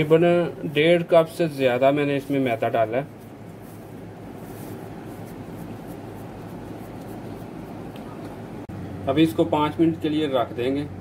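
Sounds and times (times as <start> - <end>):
hands kneading dough in a bowl: 1.6 - 8.4.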